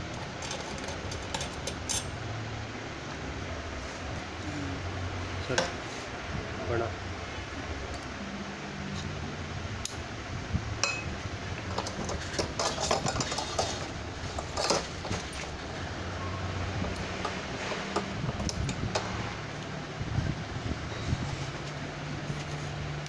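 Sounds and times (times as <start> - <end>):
steady low hum: 0.0 - 23.0
tricycle parts clicking and clinking: 11.7 - 15.6.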